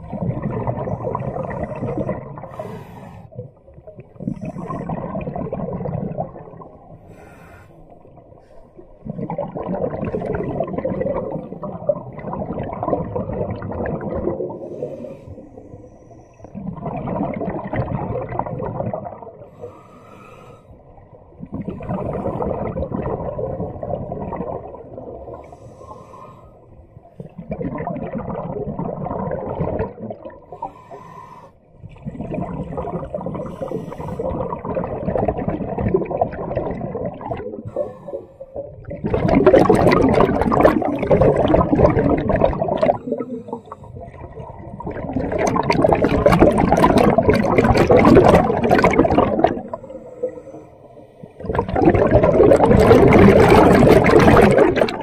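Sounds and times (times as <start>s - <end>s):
exhaled bubbles rushing out: 0.0s - 7.1s, 7.9s - 19.7s, 21.0s - 25.5s, 27.1s - 30.8s, 31.8s - 50.6s, 51.3s - 55.0s
diver breathing through regulator: 1.2s - 3.5s, 4.2s - 5.2s, 7.0s - 9.0s, 14.5s - 16.6s, 19.4s - 20.9s, 25.3s - 26.8s, 30.5s - 31.8s, 33.3s - 34.6s, 37.5s - 38.7s, 42.9s - 44.2s, 49.5s - 51.6s.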